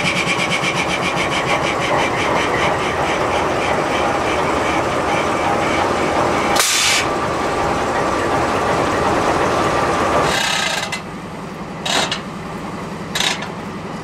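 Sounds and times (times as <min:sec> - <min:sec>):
diesel locomotive idling: 0:00.0 - 0:14.0
brief hisses: 0:06.6 - 0:07.1.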